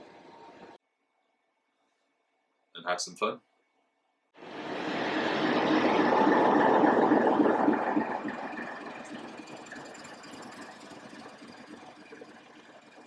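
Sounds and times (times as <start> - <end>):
diesel locomotive passing: 4.4 - 11.2.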